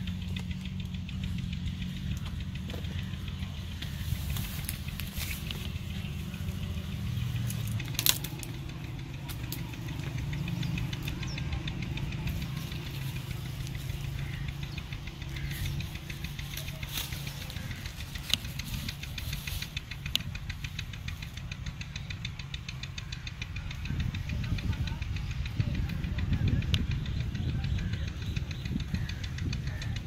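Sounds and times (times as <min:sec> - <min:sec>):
low rumble: 0:00.0 - 0:30.0
leaves and twigs rustling: 0:02.0 - 0:11.3, 0:12.0 - 0:21.6
branch snapping: 0:07.4 - 0:08.7.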